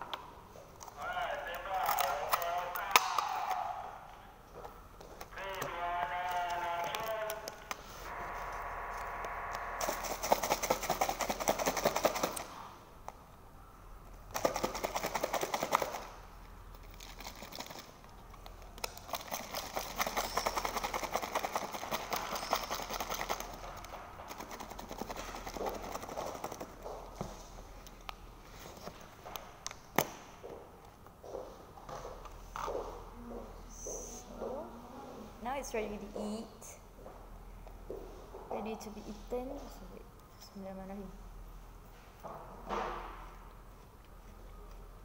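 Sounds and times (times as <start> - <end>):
plastic crackling and clicking: 0.8 - 3.6, 4.6 - 7.8, 16.7 - 27.2.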